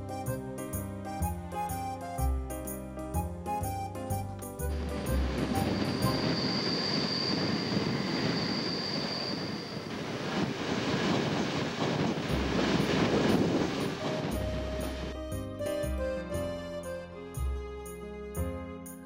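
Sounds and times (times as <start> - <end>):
high steady wheel squeal: 3.6 - 17.0
train rolling on rails: 4.4 - 16.0.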